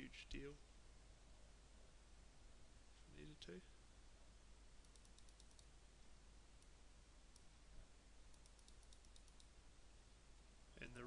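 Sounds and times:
quiet room hiss: 0.0 - 11.0
computer mouse clicks: 4.8 - 5.7, 6.6 - 7.5, 8.3 - 9.5.

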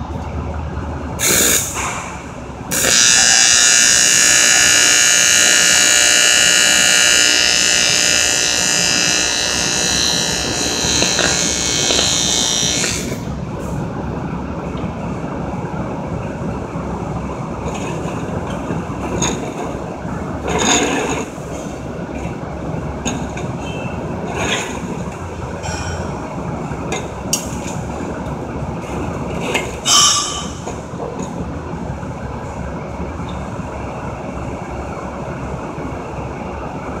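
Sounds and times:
workshop background noise: 0.0 - 35.6
metal pipe knocking and scraping: 29.4 - 31.3.

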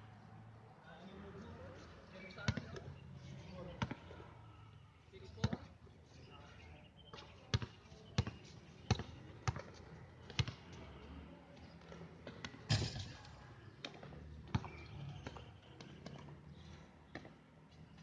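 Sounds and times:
basketball bouncing on concrete: 2.4 - 2.9, 5.4 - 5.6, 7.5 - 10.7, 13.8 - 15.5.

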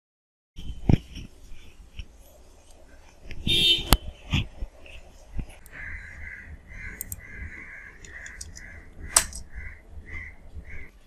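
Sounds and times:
bird calling: 2.9 - 11.0
sharp click: 8.0 - 9.5.

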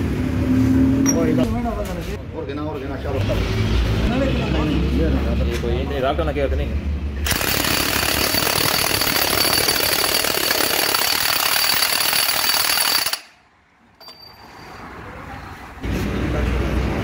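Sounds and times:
impact wrench rattling on bolt: 7.2 - 13.3.

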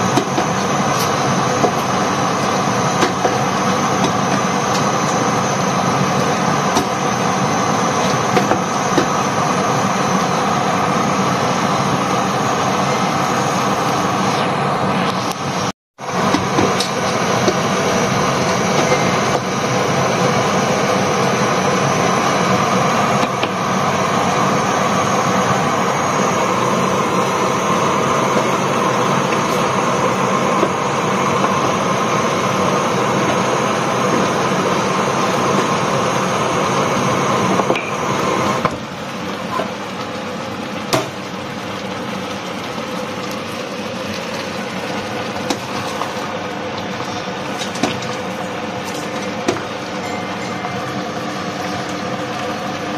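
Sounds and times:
gas stove rushing: 0.0 - 40.0, 40.7 - 52.9.

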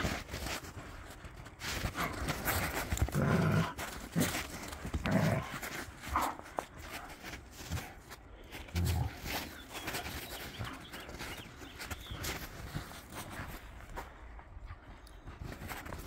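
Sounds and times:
dogs scuffling: 0.0 - 14.0
dogs panting: 0.1 - 16.0
dogs growling: 1.9 - 6.7.

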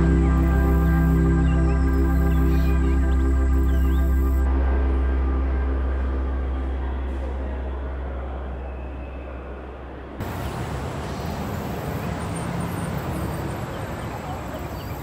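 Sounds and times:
ambient music drone: 0.0 - 10.2
passing vehicle engine hum: 9.8 - 15.0
tyres hissing on wet road: 10.2 - 13.9.

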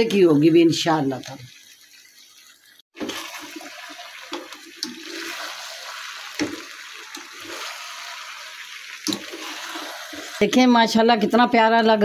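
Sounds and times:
potatoes sizzling in a pan: 0.0 - 11.5
spatula knocking and scraping pan: 6.3 - 7.8.

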